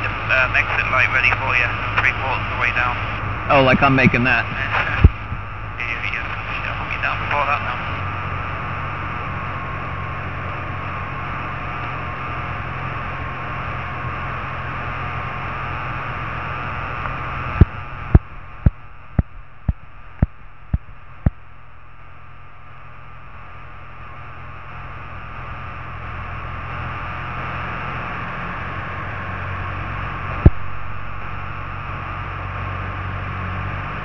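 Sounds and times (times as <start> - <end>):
aircraft engine drone: 0.0 - 34.0.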